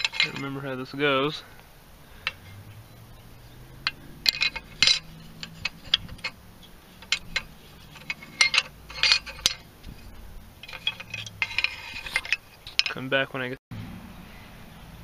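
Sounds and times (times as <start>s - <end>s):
metal clicks and clinks: 0.0s - 0.5s, 2.2s - 2.6s, 3.8s - 13.0s.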